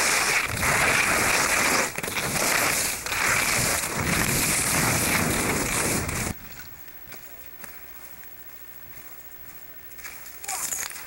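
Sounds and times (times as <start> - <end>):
skis scraping over snow: 0.0 - 6.6.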